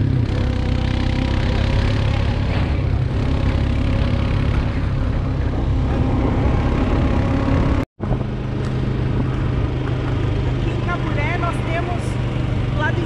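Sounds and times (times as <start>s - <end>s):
quad bike engine running: 0.0s - 13.0s
wind rushing over microphone: 2.6s - 13.0s.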